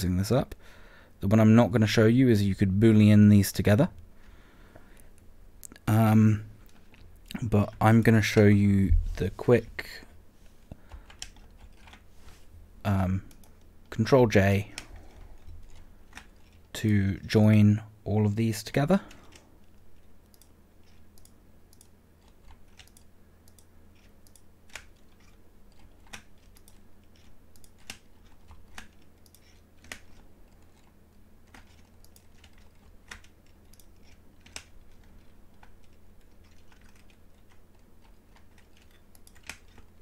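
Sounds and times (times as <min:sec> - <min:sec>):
low steady hum: 0:00.0 - 0:40.0
mouse and keyboard clicks: 0:19.2 - 0:39.9.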